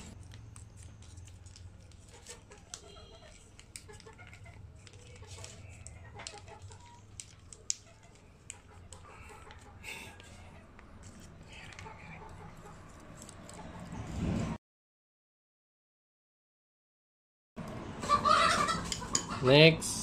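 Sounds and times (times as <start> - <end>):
plastic sachet crinkling: 0.1 - 13.7
chickens clucking: 5.2 - 7.0, 7.8 - 10.8, 11.8 - 12.9, 18.0 - 19.6.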